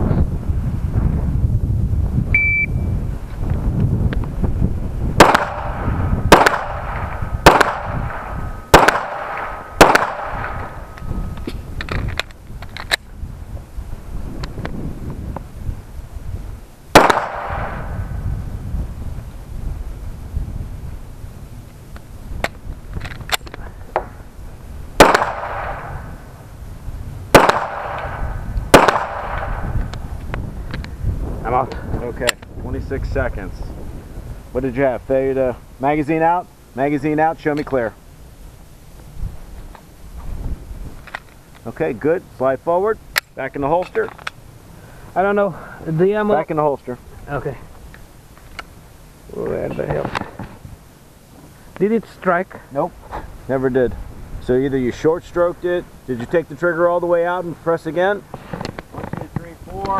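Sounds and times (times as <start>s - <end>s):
shot timer beep: 2.4s - 2.9s
pistol shots: 5.2s - 11.0s, 16.9s - 18.0s, 25.0s - 26.1s, 27.3s - 29.7s.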